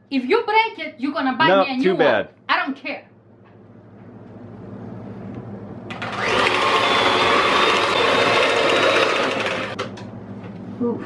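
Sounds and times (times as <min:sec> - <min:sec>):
electric mixer whirring: 0:05.9 - 0:09.9.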